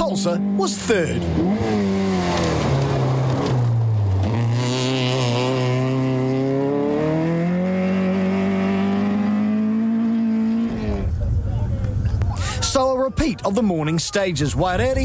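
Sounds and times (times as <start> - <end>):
rally car engine revving: 0.0 - 11.3.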